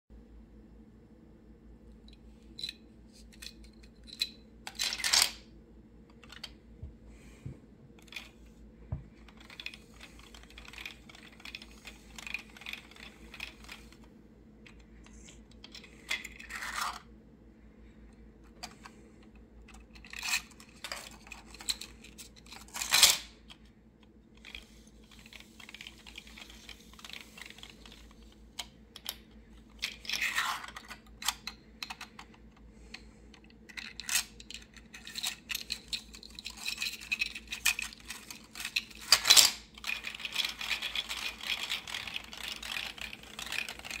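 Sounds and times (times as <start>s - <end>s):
plastic fidget toy clicking: 9.2s - 14.0s.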